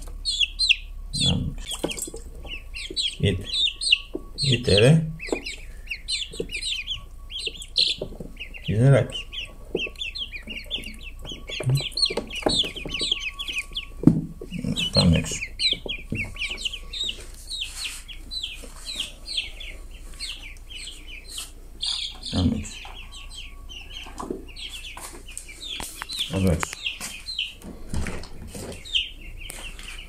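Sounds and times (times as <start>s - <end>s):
chicks and ducklings peeping: 0.0s - 30.0s
dull thumps: 7.4s - 17.3s.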